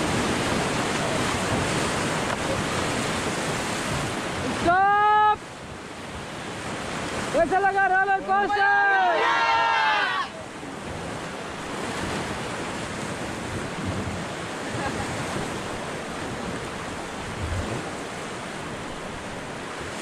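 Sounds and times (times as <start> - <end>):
river water rushing: 0.0 - 20.0
wind buffeting microphone: 10.7 - 20.0.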